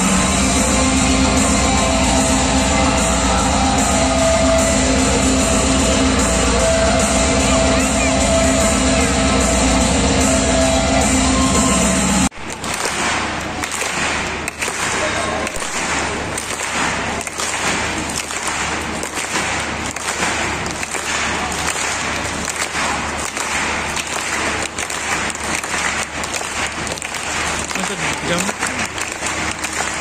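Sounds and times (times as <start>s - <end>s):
crowd voices: 0.0s - 30.0s
audience applauding: 10.6s - 30.0s.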